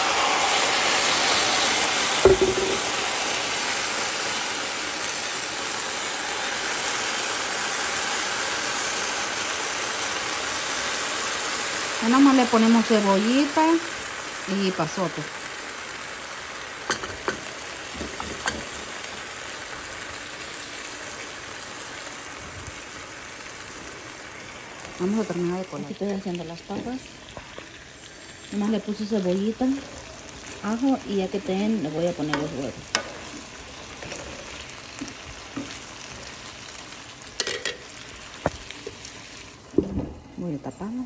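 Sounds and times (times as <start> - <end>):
sauce sizzling in a hot pan: 0.0 - 40.4
spatula scraping a pan: 32.9 - 35.8.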